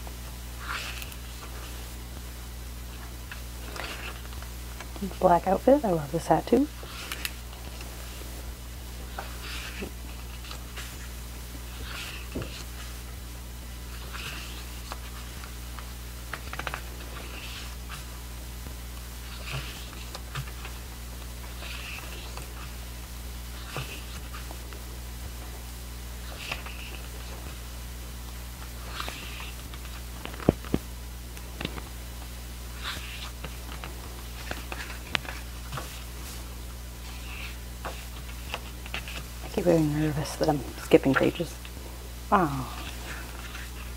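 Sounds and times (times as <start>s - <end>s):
steady low hum: 0.0s - 43.9s
pages turning: 0.6s - 2.0s, 2.9s - 5.0s, 6.8s - 8.3s, 9.0s - 13.2s, 13.9s - 18.1s, 18.9s - 22.8s, 28.8s - 41.8s, 42.8s - 43.9s.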